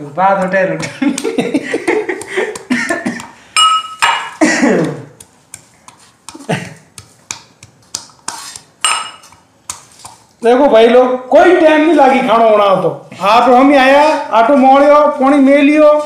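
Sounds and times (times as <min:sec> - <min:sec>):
pestle striking steel mortar: 0:02.1 - 0:10.2.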